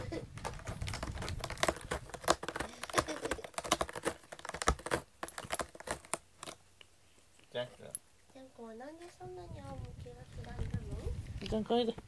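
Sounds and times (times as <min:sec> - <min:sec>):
cat claws scratching cardboard: 0:00.3 - 0:06.6.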